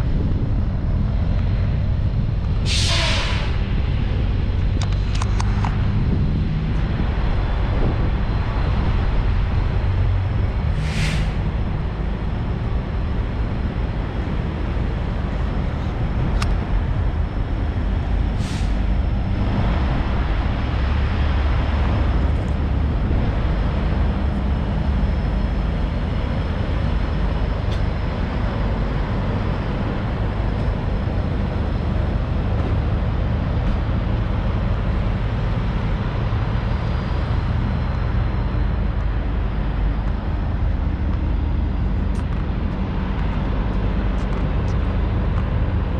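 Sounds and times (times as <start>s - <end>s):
truck diesel engine rumbling: 0.0s - 45.9s
air brake hiss: 2.6s - 3.6s, 10.7s - 11.4s, 18.4s - 18.8s.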